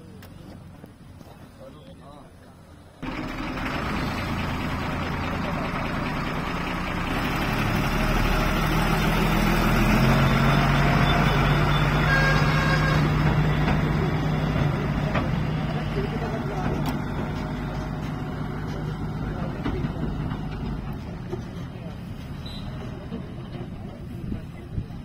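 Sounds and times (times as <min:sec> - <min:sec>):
diesel truck engine driving off: 0:03.0 - 0:25.0.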